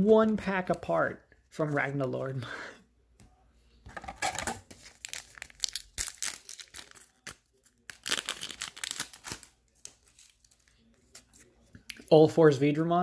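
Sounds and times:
foil wrapper crinkling and tearing: 0:04.2 - 0:11.4.

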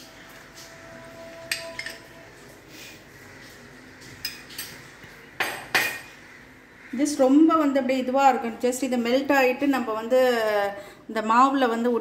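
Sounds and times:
metal spoon clinking against bowl: 0:01.5 - 0:02.1.

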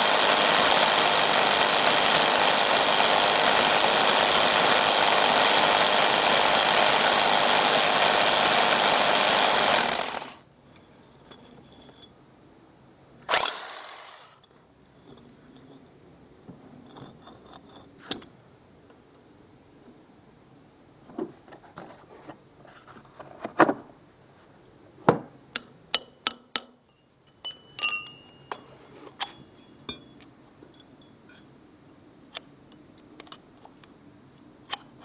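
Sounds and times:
metal tools clinking: 0:25.6 - 0:31.5
short ringing metal chinks: 0:25.6 - 0:31.5.

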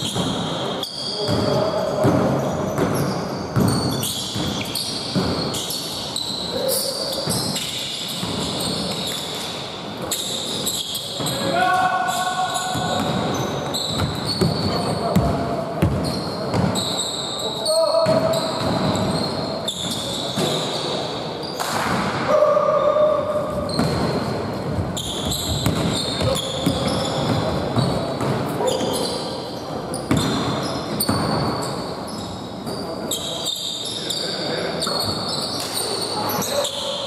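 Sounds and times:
sneaker squeaks on gym floor: 0:00.0 - 0:21.8, 0:23.4 - 0:37.0
basketball bouncing: 0:01.2 - 0:05.6, 0:12.7 - 0:16.8, 0:23.6 - 0:28.4
players' voices: 0:11.2 - 0:19.2.

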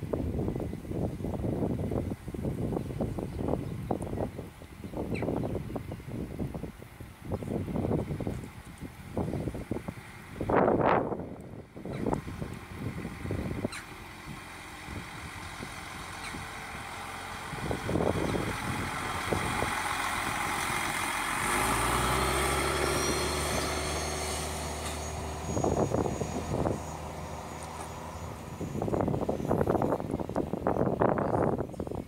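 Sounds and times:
wind thumping on microphone: 0:00.0 - 0:16.5, 0:17.5 - 0:20.4, 0:27.7 - 0:32.0
diesel engine drone: 0:00.0 - 0:32.0
train wheels rumbling on rails: 0:00.0 - 0:32.0.

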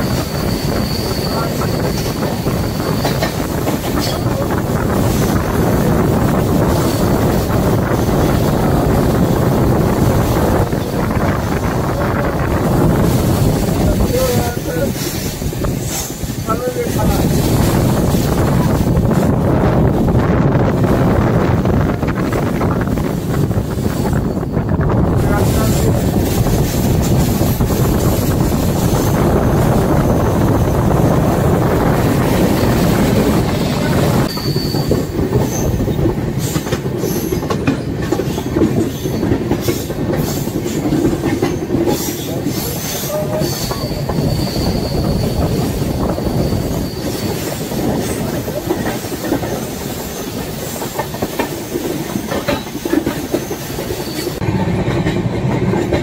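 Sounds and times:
high wheel squeals: 0:00.0 - 0:04.3, 0:32.4 - 0:37.5, 0:41.9 - 0:48.4, 0:52.6 - 0:54.4
train rushing rumble: 0:00.0 - 0:56.0.

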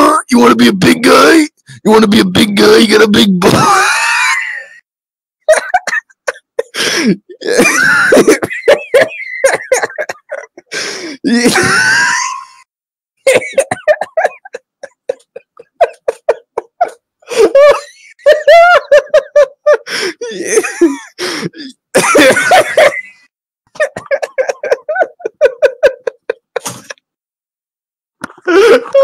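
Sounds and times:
person laughing: 0:05.5 - 0:10.7, 0:13.3 - 0:27.0.

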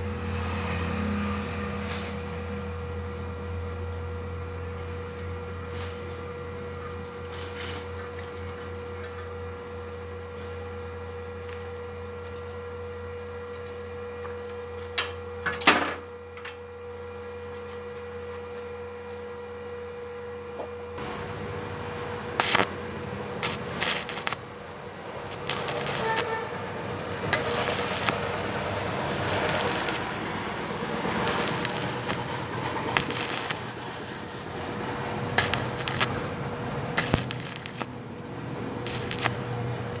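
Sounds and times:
low electrical hum: 0:02.2 - 0:40.0
welding arc crackling: 0:21.0 - 0:40.0.

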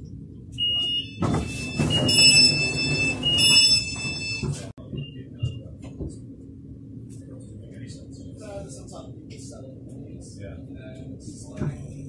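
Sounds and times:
train door warning beeps: 0:00.5 - 0:05.7
train doors rushing: 0:00.8 - 0:04.7.

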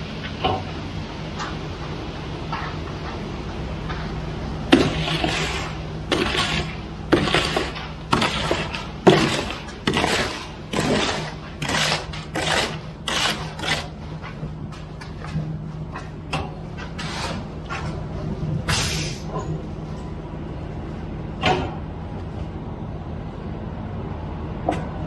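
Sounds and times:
wet concrete sliding down chute: 0:04.8 - 0:13.9.

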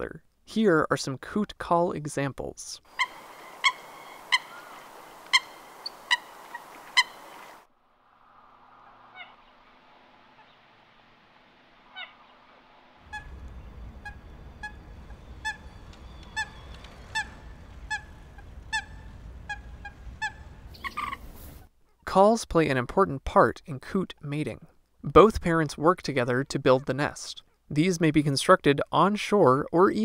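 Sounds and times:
coots calling: 0:02.9 - 0:07.7, 0:08.8 - 0:09.6, 0:11.9 - 0:12.4, 0:13.0 - 0:21.7
wind rumbling on microphone: 0:13.1 - 0:21.7.

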